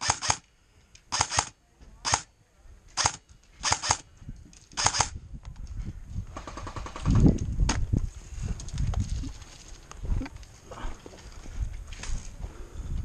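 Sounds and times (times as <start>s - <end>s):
airsoft rifle fire: 0.0s - 0.4s, 1.1s - 2.3s, 3.0s - 4.0s, 4.8s - 5.1s.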